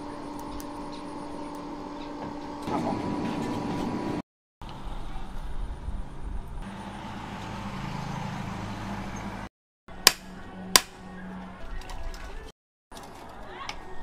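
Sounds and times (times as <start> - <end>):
hammer striking anvil: 10.0 - 11.0.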